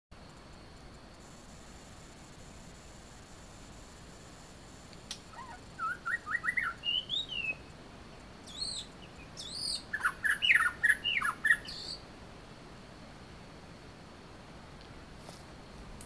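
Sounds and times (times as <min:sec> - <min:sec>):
songbird whistling song: 0:05.1 - 0:07.7, 0:08.4 - 0:12.0.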